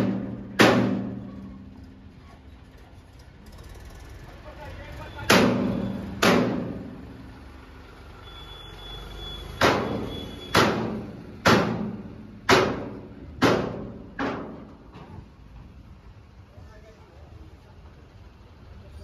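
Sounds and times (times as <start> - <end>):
heavy clanging bangs: 0.0 - 1.6, 5.1 - 7.1, 9.6 - 15.2.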